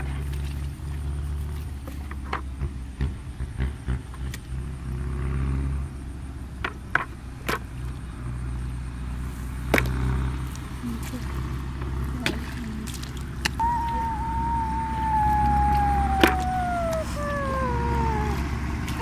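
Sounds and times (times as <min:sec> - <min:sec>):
hands splashing in muddy water: 0:09.6 - 0:14.1.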